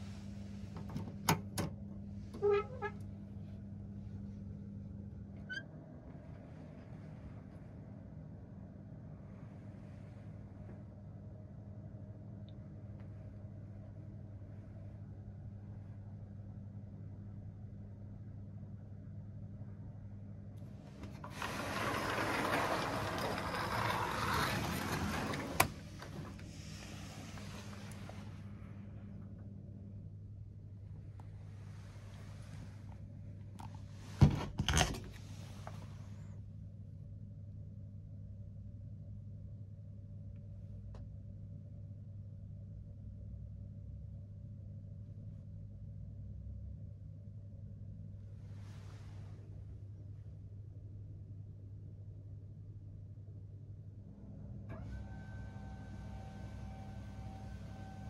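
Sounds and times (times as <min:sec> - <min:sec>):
steady low hum: 0:00.0 - 0:21.4, 0:22.1 - 0:58.0
roller blind click: 0:21.0 - 0:28.1
roller blind rattling and whirring: 0:21.0 - 0:28.2.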